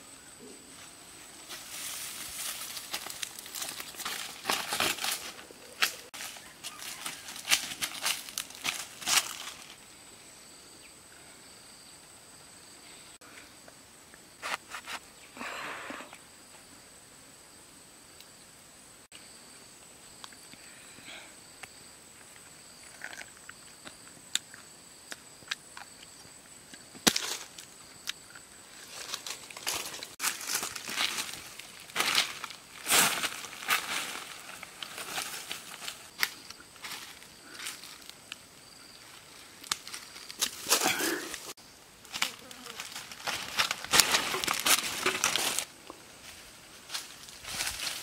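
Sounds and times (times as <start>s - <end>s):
footsteps through dry leaves: 1.4s - 9.8s, 28.8s - 36.2s, 39.8s - 48.0s.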